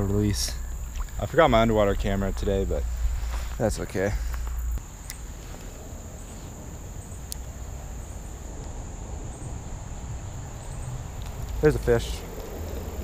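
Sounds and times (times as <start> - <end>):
low rumble: 0.0 - 6.1
high-pitched cricket chorus: 0.0 - 13.0.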